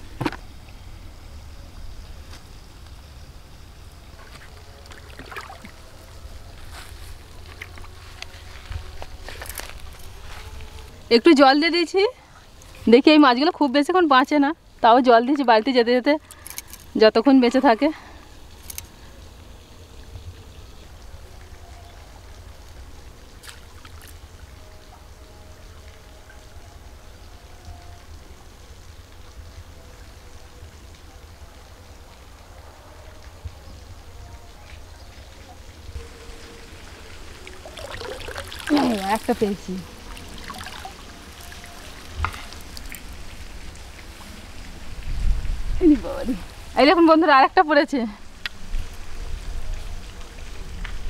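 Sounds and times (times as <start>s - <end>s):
pond water splashing and swishing: 0.0s - 11.2s, 17.6s - 29.8s, 33.2s - 47.4s, 48.2s - 51.0s
short splashes: 4.9s - 5.8s
metal pot splashing in water: 37.4s - 43.2s
wind rumble on microphone: 43.4s - 46.8s.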